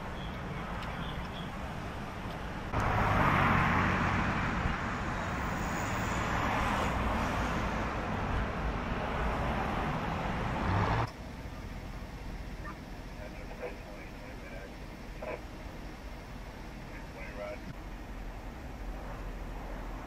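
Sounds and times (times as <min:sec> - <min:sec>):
vehicles passing by: 0:00.0 - 0:20.0.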